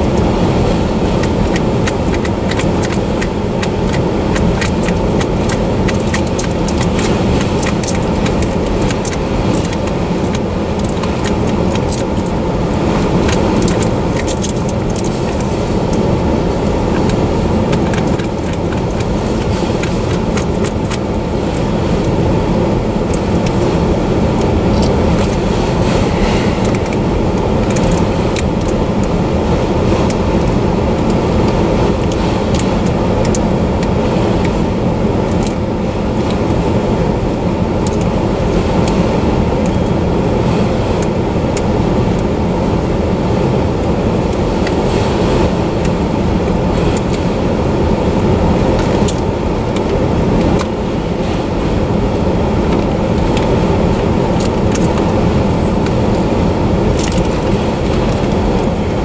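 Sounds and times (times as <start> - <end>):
sharp clicks and rattles: 0.0 - 42.4, 43.7 - 47.4, 48.0 - 59.0
train wheels rumbling on rails: 0.0 - 59.0.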